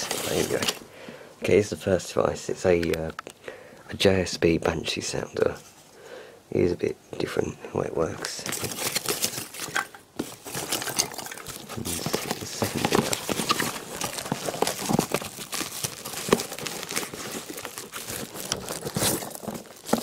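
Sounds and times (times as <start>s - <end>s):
paper and plastic crinkling: 0.0s - 0.8s, 8.2s - 20.0s
handling knocks and clicks: 8.2s - 20.0s.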